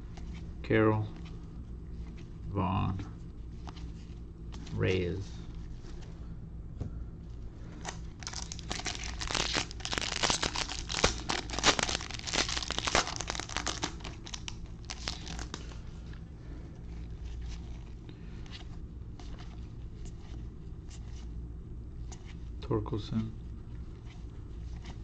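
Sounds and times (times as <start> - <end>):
foil wrapper crackling: 7.9 - 15.8.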